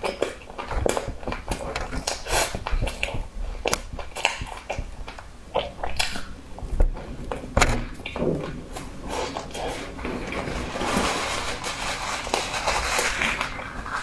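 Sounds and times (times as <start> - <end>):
person chewing: 0.0 - 10.5.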